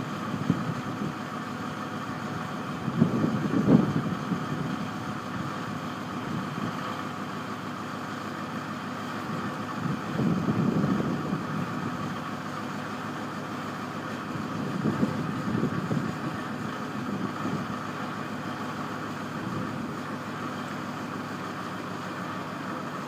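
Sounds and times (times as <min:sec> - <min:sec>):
tractor engine running: 0:00.0 - 0:23.0
wind gusting on microphone: 0:02.8 - 0:05.5, 0:09.4 - 0:12.0, 0:14.3 - 0:17.8.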